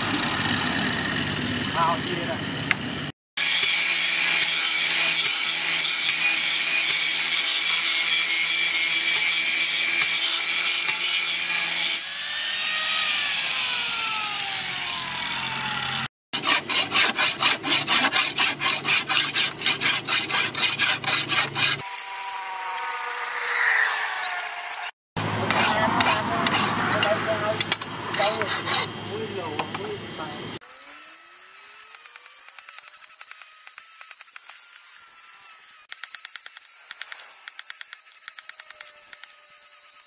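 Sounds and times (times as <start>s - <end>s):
grinder winding down: 0.0s - 6.4s, 11.6s - 16.1s, 21.7s - 28.4s
angle grinder grinding steel: 0.0s - 30.0s, 30.6s - 40.0s
file rasping on steel: 16.4s - 24.8s, 25.4s - 29.0s.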